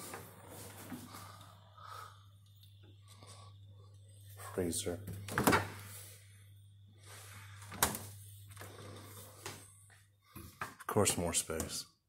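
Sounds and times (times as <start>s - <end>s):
freezer door shutting: 5.2s - 5.9s, 7.6s - 8.7s.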